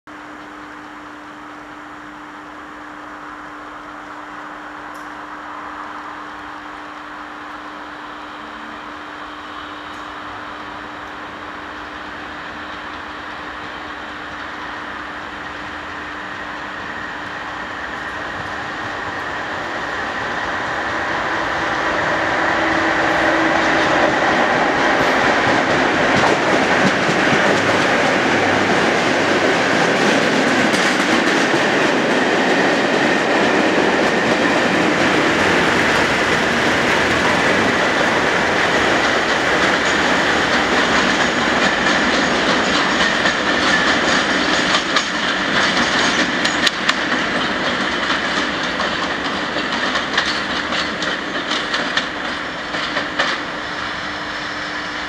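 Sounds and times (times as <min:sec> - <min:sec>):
diesel locomotive engine: 0:00.1 - 0:55.0
wheel and rail noise: 0:00.1 - 0:55.0
wheels clicking over rail joints: 0:23.8 - 0:53.6.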